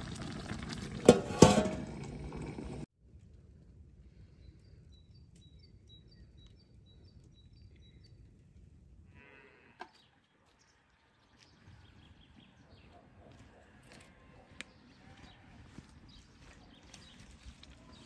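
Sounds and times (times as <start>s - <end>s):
distant cow mooing: 9.1s - 9.9s.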